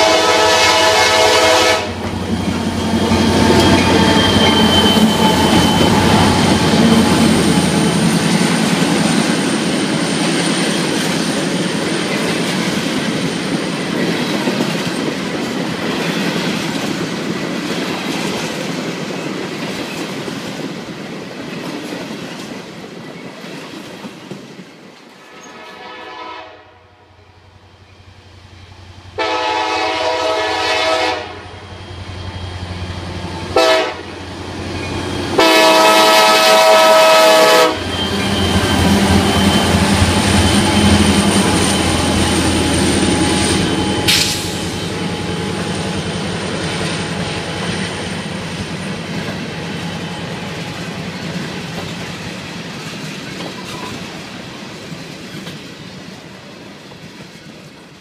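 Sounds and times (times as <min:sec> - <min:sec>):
diesel locomotive horn: 0:00.0 - 0:08.4, 0:25.2 - 0:27.2, 0:29.1 - 0:31.8, 0:33.3 - 0:47.7
diesel locomotive rumble: 0:00.0 - 0:12.8, 0:27.5 - 0:54.2
train wheels clicking over rail joints: 0:01.9 - 0:25.1, 0:36.6 - 0:58.0.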